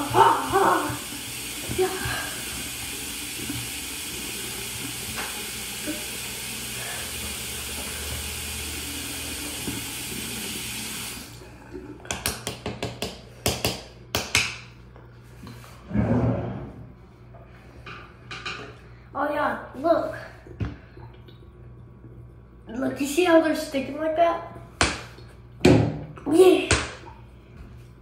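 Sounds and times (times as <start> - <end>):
tap running into sink: 4.8 - 5.8.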